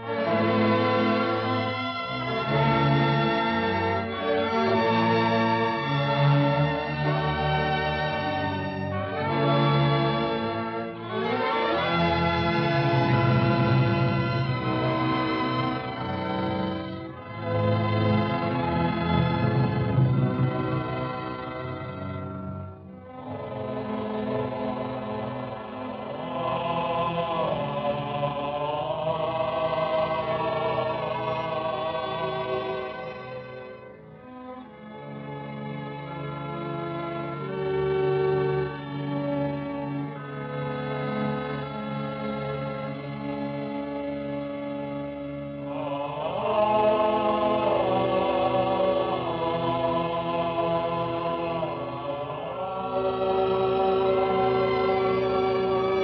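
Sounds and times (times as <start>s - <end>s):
orchestral film music: 0.0s - 56.0s
choir singing held notes: 23.1s - 33.7s, 45.5s - 56.0s.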